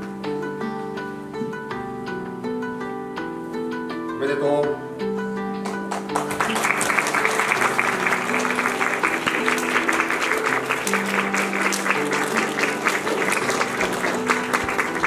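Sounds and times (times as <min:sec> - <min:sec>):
instrumental music with low notes: 0:00.0 - 0:15.0
audience clapping: 0:05.6 - 0:15.0.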